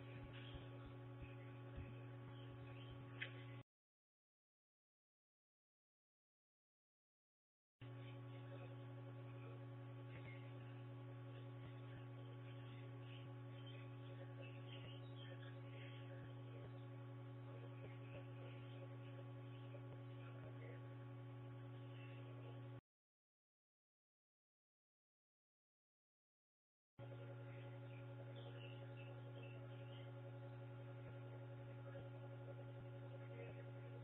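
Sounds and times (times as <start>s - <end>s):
electrical hum with fixed tones: 0.0s - 3.6s, 7.8s - 22.8s, 27.0s - 34.0s.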